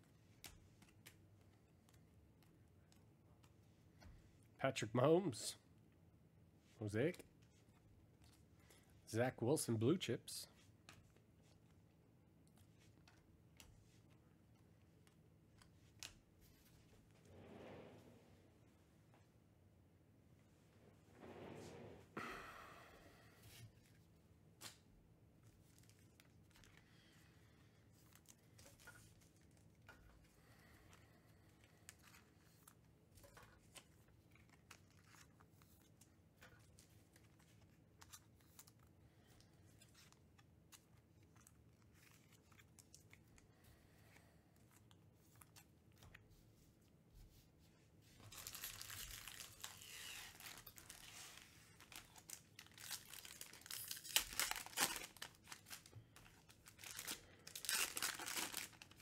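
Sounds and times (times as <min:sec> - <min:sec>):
foil wrappers crinkling: 0:48.2 - 0:59.0.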